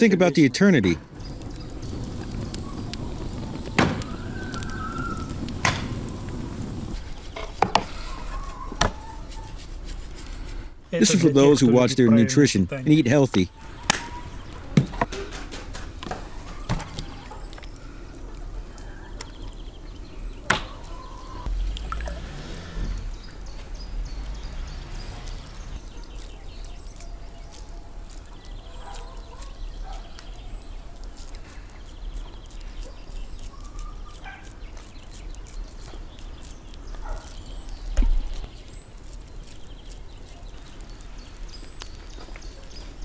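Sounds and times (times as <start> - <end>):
wind rumble on microphone: 1.1 - 7.0
hands squeezing meat onto skewers: 1.1 - 11.2, 13.1 - 43.0
faint bird calls: 1.5 - 6.6, 7.8 - 9.6.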